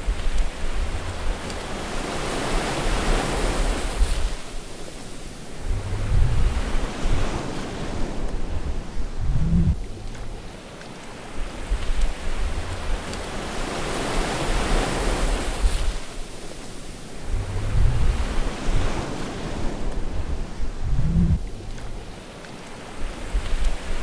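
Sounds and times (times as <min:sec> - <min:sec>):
ocean waves washing in: 0:00.0 - 0:24.0
low rumble of breakers: 0:05.5 - 0:07.4, 0:08.2 - 0:10.6, 0:17.2 - 0:18.9, 0:19.8 - 0:22.2.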